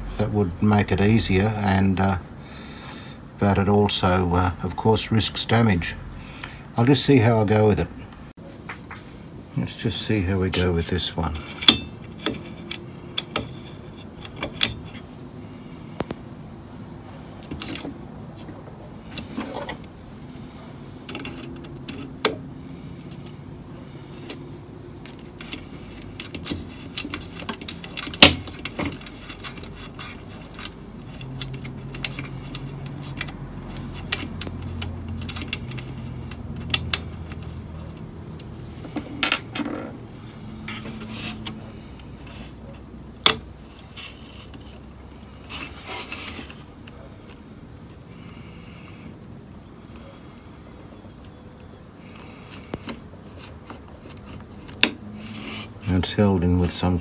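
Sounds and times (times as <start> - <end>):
metal rubbing and scraping: 22.7 - 42.9, 43.6 - 47.2, 52.0 - 56.5.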